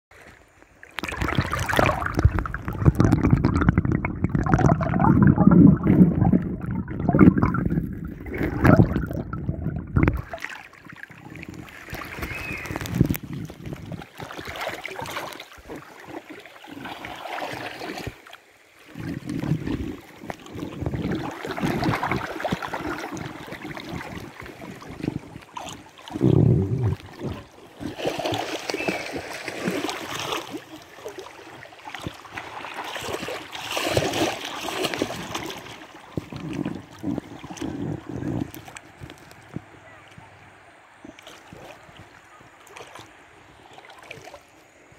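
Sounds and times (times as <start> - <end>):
river water sloshing and splashing: 0.1 - 44.9.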